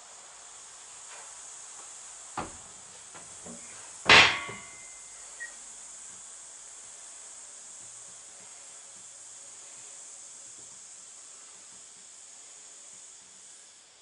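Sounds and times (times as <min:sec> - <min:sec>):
sharp knock with metallic ring: 0:04.1 - 0:05.0.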